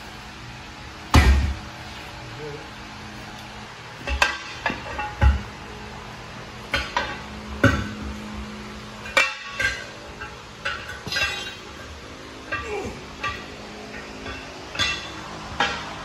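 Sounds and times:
tire irons clanking on metal rim: 0:04.0 - 0:05.9, 0:06.6 - 0:16.0.

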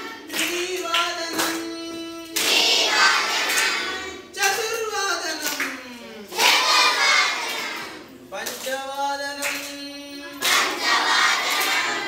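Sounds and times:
children singing in unison: 0:02.4 - 0:04.3, 0:06.3 - 0:08.1, 0:10.4 - 0:12.0.

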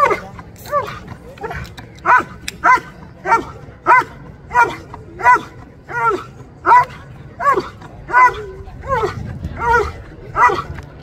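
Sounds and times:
dog barking insistently: 0:00.8 - 0:10.7.

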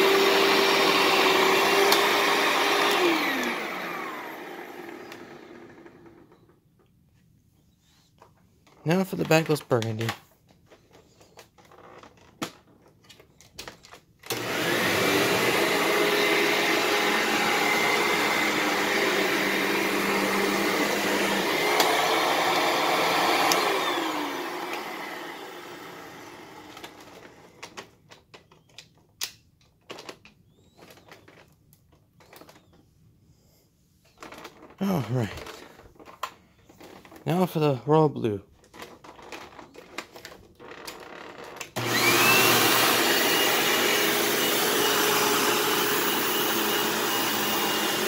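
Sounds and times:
vacuum cleaner running: 0:00.0 - 0:06.5, 0:14.2 - 0:27.7, 0:41.7 - 0:48.0.

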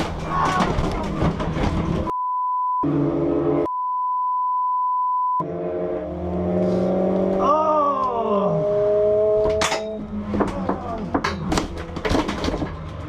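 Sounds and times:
censor bleeps: 0:02.1 - 0:02.9, 0:03.6 - 0:05.4.

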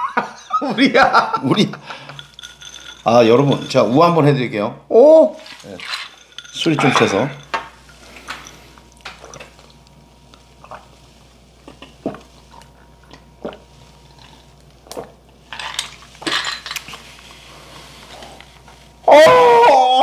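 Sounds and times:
chopsticks and dishes clinking: 0:01.5 - 0:04.2, 0:05.4 - 0:09.6
person exclaiming loudly: 0:04.9 - 0:05.4, 0:19.1 - 0:20.0.

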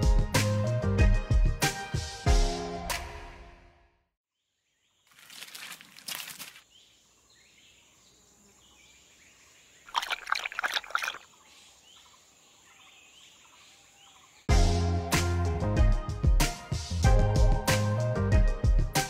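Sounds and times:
music: 0:00.0 - 0:04.0, 0:14.5 - 0:19.0
animal lapping and gulping: 0:09.9 - 0:11.2.

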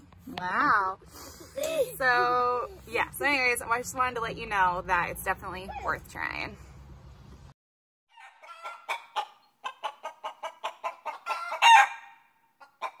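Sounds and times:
chicken clucking: 0:08.1 - 0:12.0
chicken squawk: 0:08.1 - 0:13.0.

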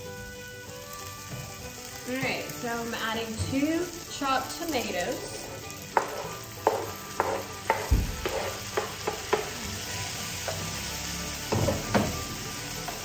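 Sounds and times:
frying sizzle: 0:00.0 - 0:13.0
spoon stirring pan: 0:04.5 - 0:12.2
spoon tapping cutting board: 0:06.0 - 0:09.6
knocks: 0:07.7 - 0:08.4.

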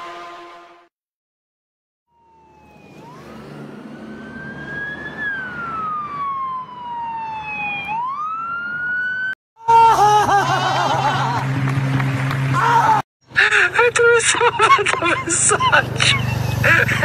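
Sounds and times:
siren wailing: 0:02.1 - 0:09.4.

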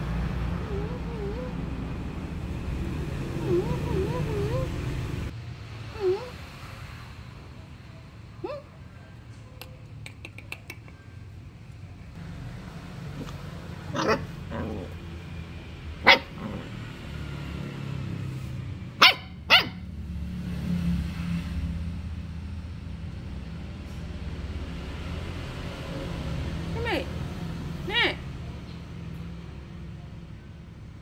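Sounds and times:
dog barking: 0:13.2 - 0:15.0, 0:16.0 - 0:16.8, 0:18.9 - 0:19.9.

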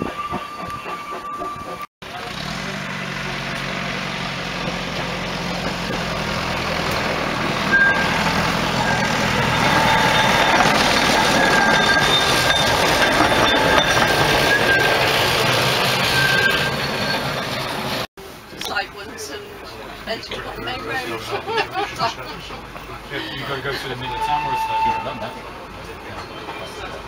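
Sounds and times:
railcar running past: 0:00.0 - 0:18.1, 0:19.4 - 0:27.0
thin high squeal: 0:07.7 - 0:15.3, 0:16.0 - 0:17.3, 0:23.4 - 0:25.5.

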